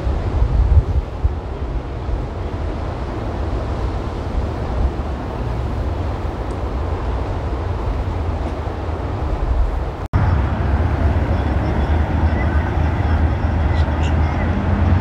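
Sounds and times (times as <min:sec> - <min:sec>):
wind on microphone: 0:00.0 - 0:11.6
outboard engine rumble: 0:00.0 - 0:15.0
water noise: 0:00.0 - 0:15.0.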